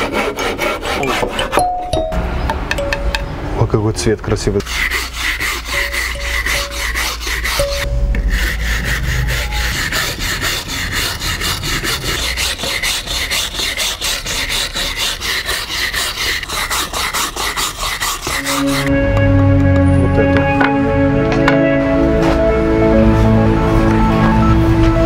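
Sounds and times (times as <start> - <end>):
brush scrubbing wooden board: 4.6 - 18.9.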